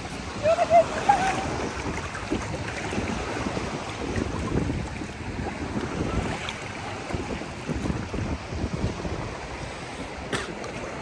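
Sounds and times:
small waves washing: 0:00.0 - 0:11.0
wind buffeting microphone: 0:00.0 - 0:11.0.

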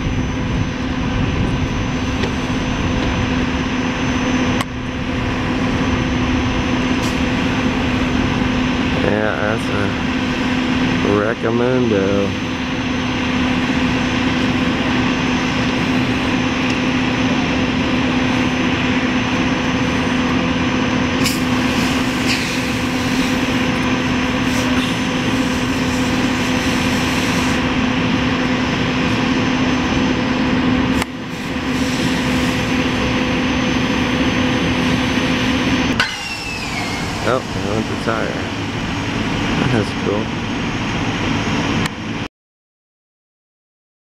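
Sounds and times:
engine drone: 0:00.0 - 0:42.3
fire hose spraying water: 0:21.2 - 0:29.0, 0:30.9 - 0:33.2, 0:36.0 - 0:40.3.

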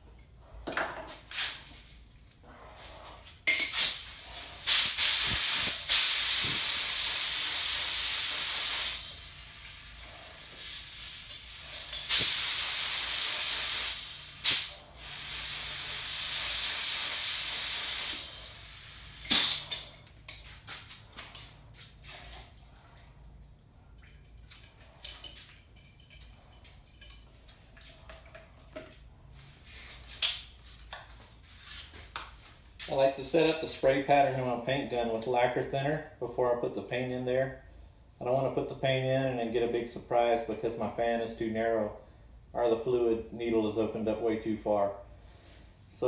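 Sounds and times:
spray gun hissing: 0:03.7 - 0:19.7.

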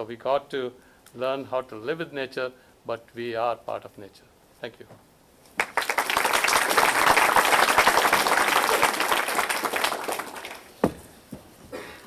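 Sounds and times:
audience applauding: 0:05.6 - 0:10.7
thump: 0:10.8 - 0:11.1.

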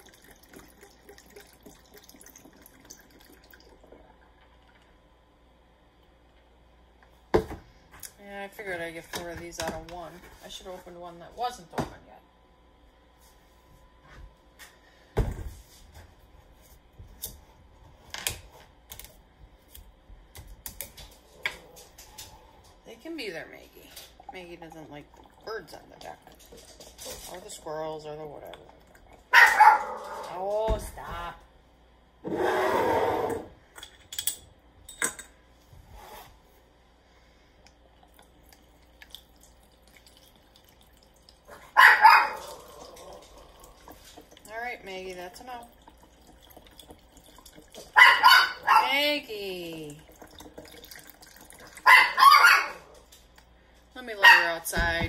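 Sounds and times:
dog barking: 0:29.3 - 0:30.3, 0:41.6 - 0:42.9, 0:47.9 - 0:49.0, 0:51.8 - 0:53.0, 0:54.2 - 0:54.5.

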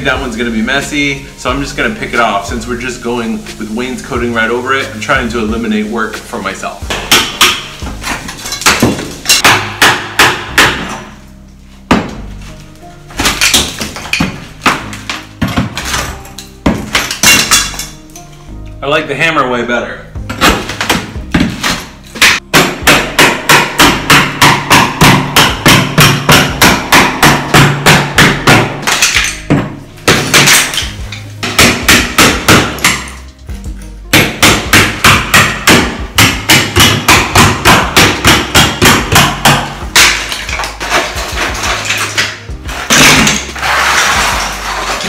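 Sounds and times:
hammer chipping ceramic tile: 0:06.9 - 0:11.0, 0:16.7 - 0:17.8, 0:20.4 - 0:33.3, 0:34.2 - 0:45.0.

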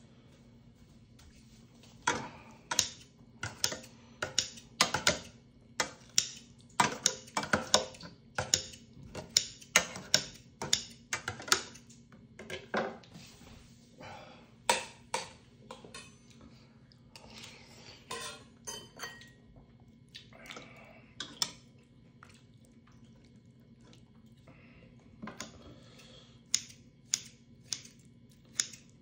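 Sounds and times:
chewing and smacking: 0:19.6 - 0:24.5.

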